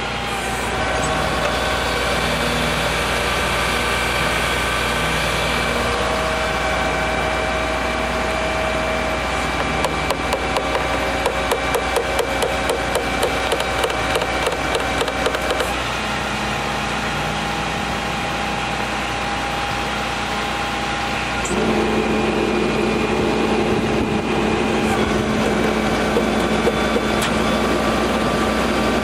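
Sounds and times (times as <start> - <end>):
truck engine running: 0.0 - 29.0
sharp clicks and creaks: 9.6 - 15.8.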